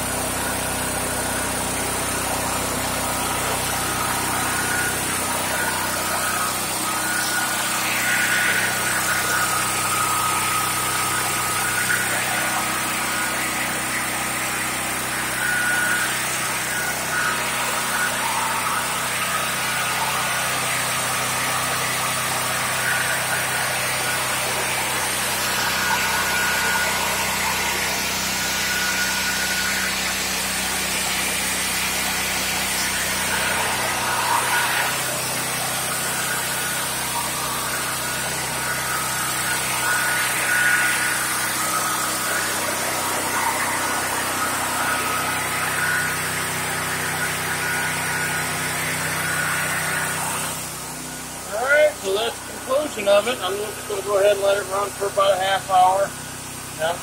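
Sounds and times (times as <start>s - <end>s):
generator engine running: 0.0s - 6.9s, 49.7s - 57.0s.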